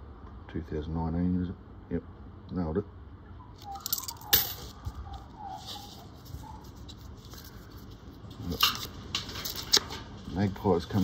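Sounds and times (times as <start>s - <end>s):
sharp clicks of coin roll: 3.7s - 4.7s.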